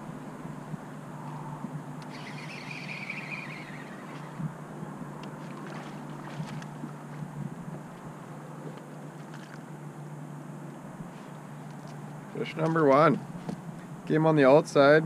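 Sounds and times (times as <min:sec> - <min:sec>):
electric motor humming: 0:02.0 - 0:04.5.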